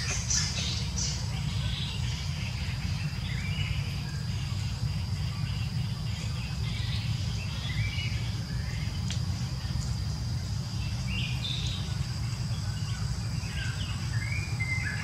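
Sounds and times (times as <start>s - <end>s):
short chirping calls: 0.0s - 4.4s
high insect drone: 0.0s - 15.0s.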